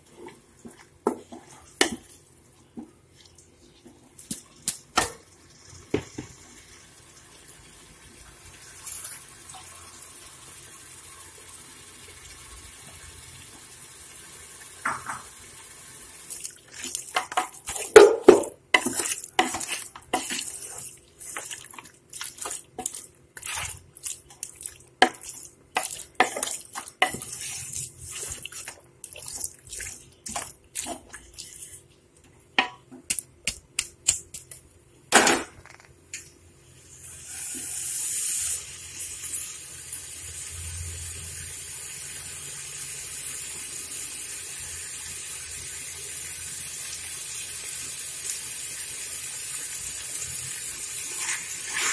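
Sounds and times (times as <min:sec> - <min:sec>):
frying hiss: 0:00.0 - 0:32.1, 0:36.7 - 0:51.9
spoon scraping metal pot: 0:16.8 - 0:28.8.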